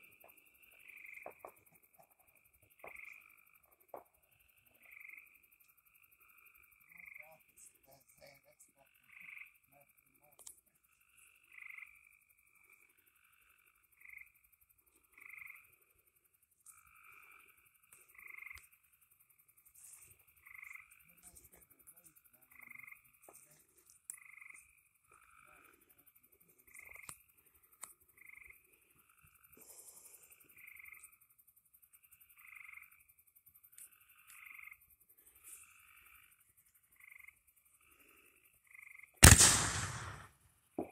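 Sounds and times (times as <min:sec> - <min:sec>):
frogs calling: 0:00.0 - 0:39.4
faint clicks: 0:39.2 - 0:40.3.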